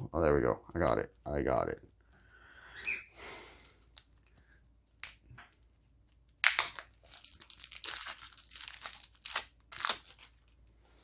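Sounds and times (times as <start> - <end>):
plastic wrapping crinkling and tearing: 3.6 - 10.7.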